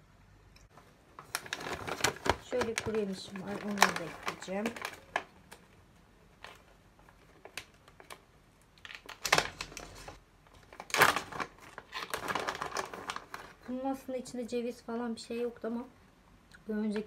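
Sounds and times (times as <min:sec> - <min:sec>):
plastic bag crinkling: 0:00.7 - 0:13.9.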